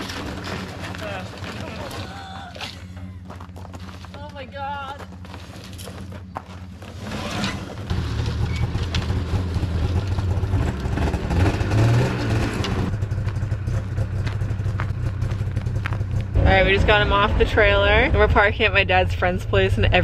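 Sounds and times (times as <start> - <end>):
snowmobile engine running: 0.0 - 20.0.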